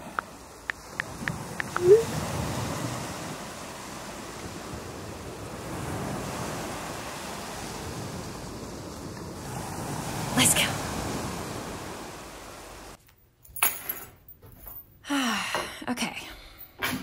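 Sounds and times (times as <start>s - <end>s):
ocean surf: 0.0s - 13.0s.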